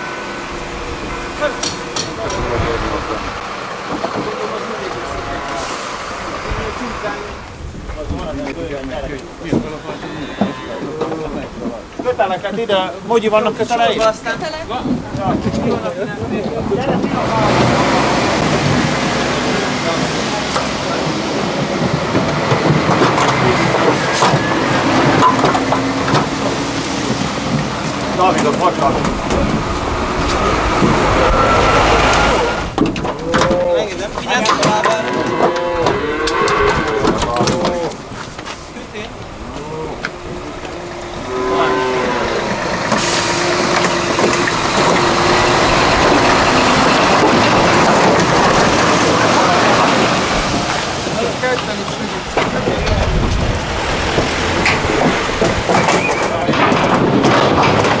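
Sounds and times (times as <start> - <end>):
steady mechanical drone: 0.0 - 5.6
large vehicle engine running: 0.0 - 8.5, 16.6 - 33.3, 42.0 - 58.0.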